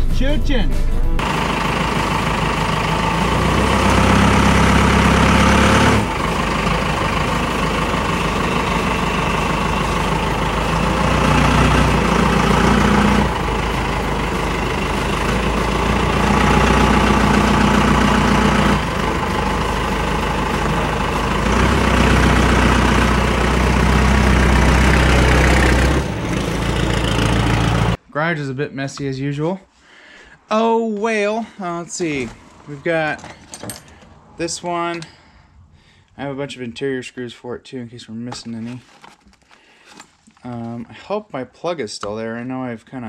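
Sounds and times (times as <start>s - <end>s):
diesel engine idling: 0.0s - 28.0s.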